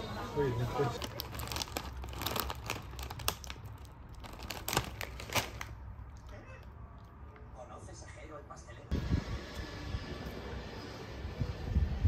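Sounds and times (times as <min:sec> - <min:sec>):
crinkling and rustling: 0:00.7 - 0:06.3.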